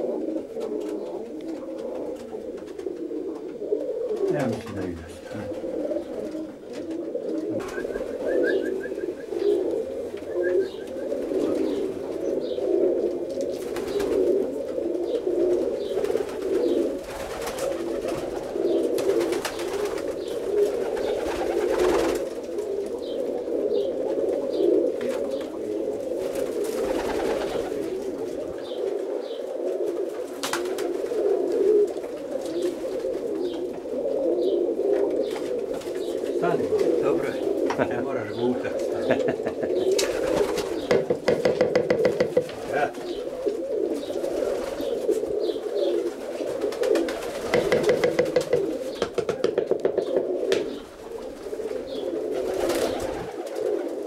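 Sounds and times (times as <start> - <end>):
pigeons cooing: 0.0 - 54.0
faint short knocks: 40.9 - 42.6.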